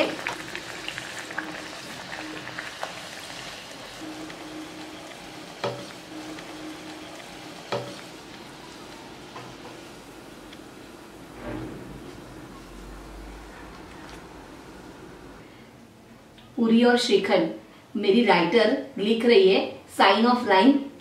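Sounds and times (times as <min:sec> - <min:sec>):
bread deep-frying in oil: 0:00.0 - 0:10.1.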